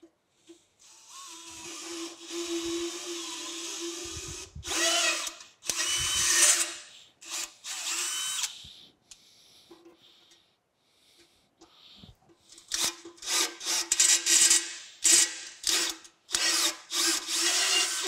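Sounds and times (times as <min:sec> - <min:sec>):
cordless drill tapping metal: 0:01.1 - 0:08.5, 0:12.7 - 0:18.0.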